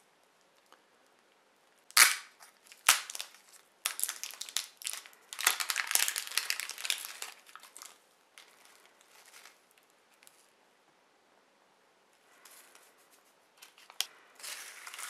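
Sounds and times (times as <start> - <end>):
plastic wrap snapping: 1.9 - 9.6
plastic wrap crinkling and tearing: 1.9 - 10.4, 13.6 - 15.0.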